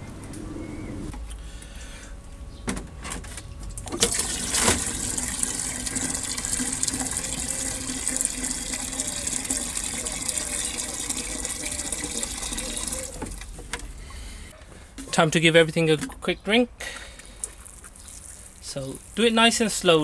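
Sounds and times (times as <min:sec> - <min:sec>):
water filling plastic watering can: 0:03.9 - 0:13.7, 0:17.4 - 0:19.2.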